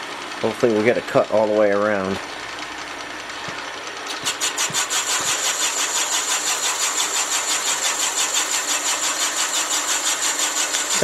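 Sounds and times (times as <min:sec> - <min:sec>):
boring bar cutting metal: 0:04.1 - 0:11.0.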